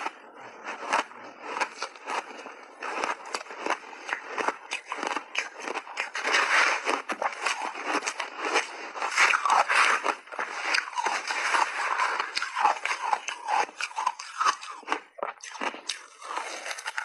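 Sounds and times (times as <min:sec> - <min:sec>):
shaved ice being chewed: 0:00.0 - 0:17.0.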